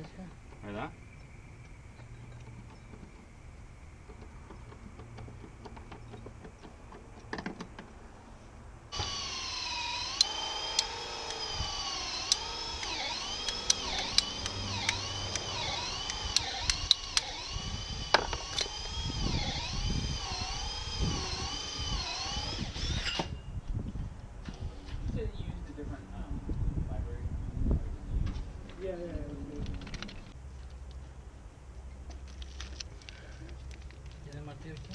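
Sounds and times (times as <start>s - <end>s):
power drill running: 8.9s - 23.4s
sharp clicks: 9.0s - 23.0s, 29.6s - 31.0s.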